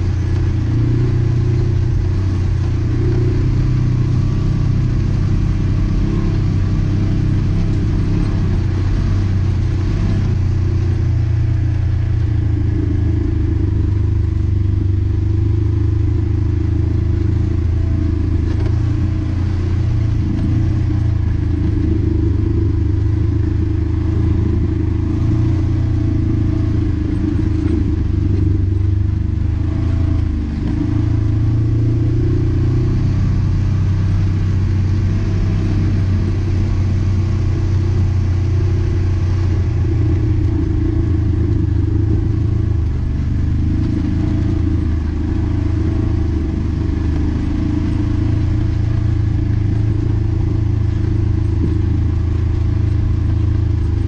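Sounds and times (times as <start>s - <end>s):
off-road vehicle engine running: 0.0s - 54.0s.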